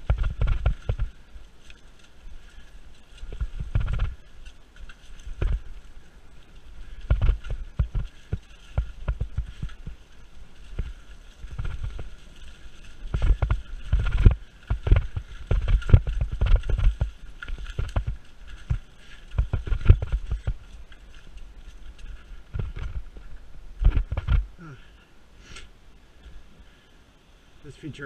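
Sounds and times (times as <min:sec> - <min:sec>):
bike rattling over bumps: 0:00.0 - 0:24.9
bike tyres crunching through leaves: 0:00.0 - 0:28.0.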